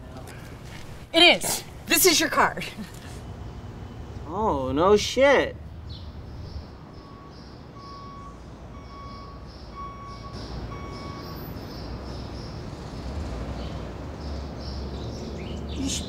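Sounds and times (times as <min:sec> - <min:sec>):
outdoor background noise: 0:00.0 - 0:16.0
reversing alarm beeping: 0:06.8 - 0:11.8.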